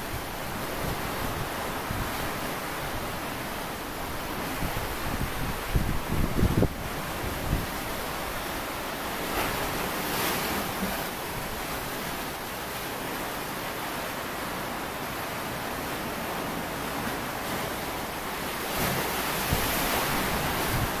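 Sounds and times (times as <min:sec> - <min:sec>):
wind on microphone: 0:00.0 - 0:08.6, 0:18.5 - 0:21.0
sea waves washing in: 0:00.0 - 0:21.0.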